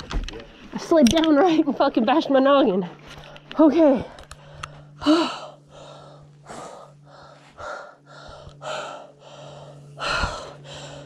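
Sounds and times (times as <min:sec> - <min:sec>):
person breathing hard and fast: 0:03.2 - 0:11.0
voiced gasp: 0:04.4 - 0:11.0.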